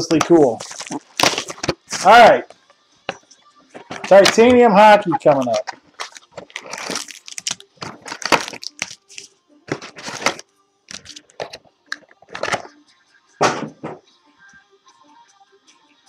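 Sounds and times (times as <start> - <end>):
packaging being torn and crinkled: 0.2 - 2.1, 5.2 - 12.6.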